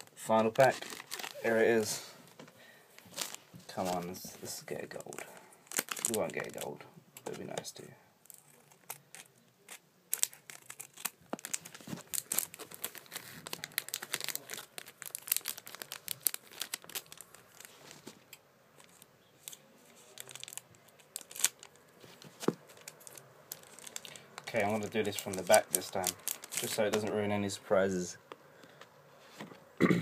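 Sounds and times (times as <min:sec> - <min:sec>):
foil wrapper tearing and crinkling: 0:00.0 - 0:01.6, 0:03.0 - 0:04.0, 0:04.8 - 0:06.7, 0:08.2 - 0:18.2, 0:18.8 - 0:27.1.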